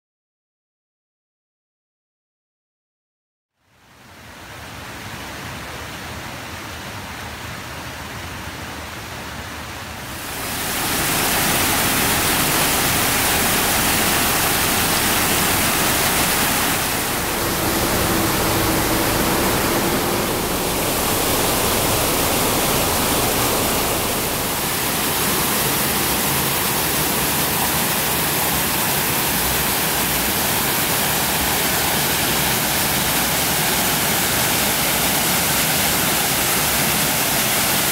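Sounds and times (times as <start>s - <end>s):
river rushing over rocks: 9.6s - 37.9s.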